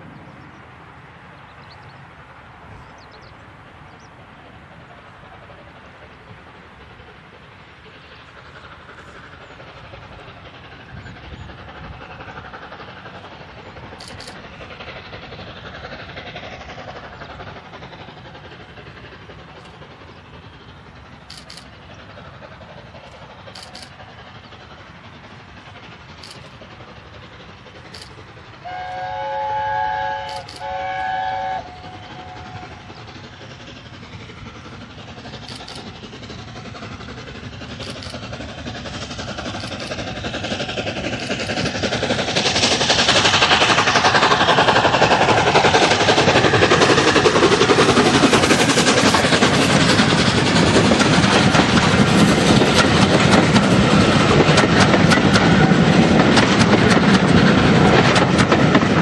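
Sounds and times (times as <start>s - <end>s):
steam locomotive running noise: 0.0s - 59.0s
coaches wheel clatter: 2.7s - 29.0s, 31.8s - 59.0s
steam locomotive chime whistle: 28.6s - 32.8s.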